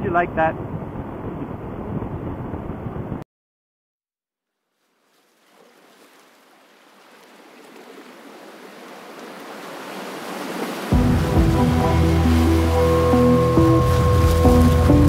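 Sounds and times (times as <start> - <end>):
background music with held notes: 10.9 - 15.0
rushing noise: 10.9 - 15.0.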